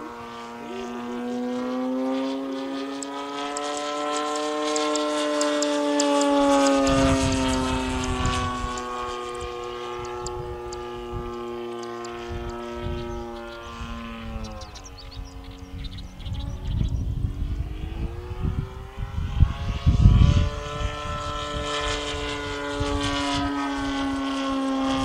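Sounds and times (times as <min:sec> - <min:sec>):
model airplane motor droning: 0:00.0 - 0:25.0.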